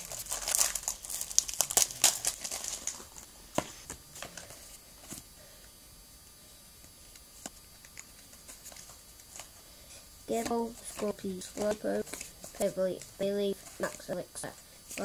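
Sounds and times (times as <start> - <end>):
foil wrapper tearing and crinkling: 0.0 - 3.2.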